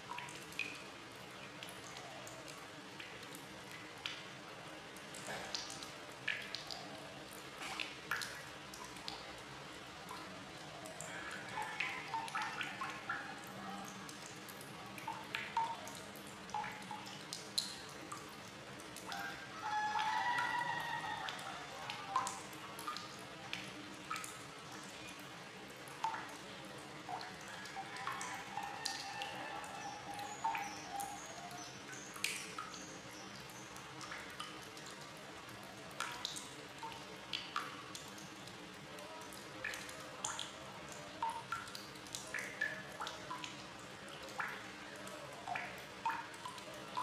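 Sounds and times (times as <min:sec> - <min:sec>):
faint water hiss: 0:00.0 - 0:47.0
water plops and plinks: 0:10.0 - 0:19.3, 0:25.8 - 0:35.0, 0:39.0 - 0:47.0
water drops plinking: 0:28.0 - 0:34.5.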